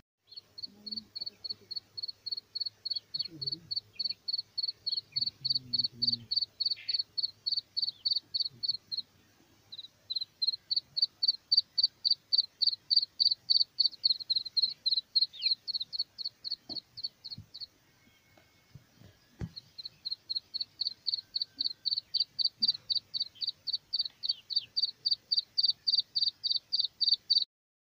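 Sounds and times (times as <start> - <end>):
chicks peeping: 19.0 - 27.4.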